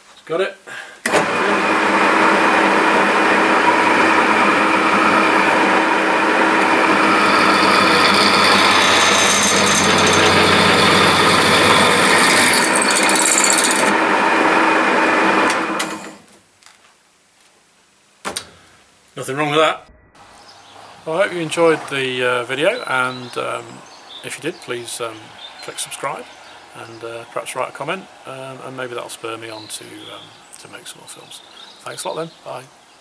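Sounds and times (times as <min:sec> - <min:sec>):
drill motor humming: 0:01.1 - 0:16.2, 0:20.2 - 0:28.8
drill running down: 0:01.1 - 0:16.2
drill bit scraping steel: 0:02.7 - 0:16.2.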